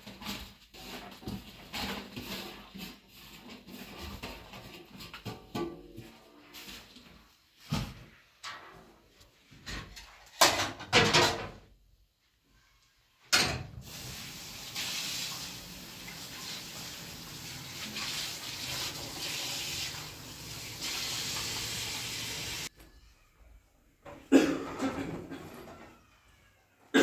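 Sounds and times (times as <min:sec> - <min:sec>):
metal dishes clattering: 0:10.3 - 0:11.6.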